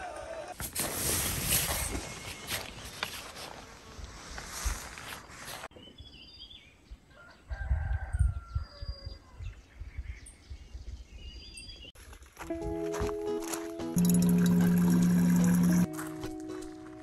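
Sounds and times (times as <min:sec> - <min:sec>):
rooster crowing: 0:07.1 - 0:09.1.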